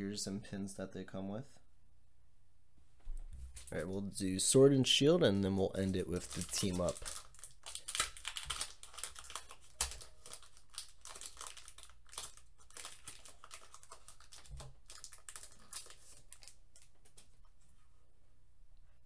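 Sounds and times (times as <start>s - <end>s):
foil wrapper crinkling and tearing: 5.6s - 17.3s.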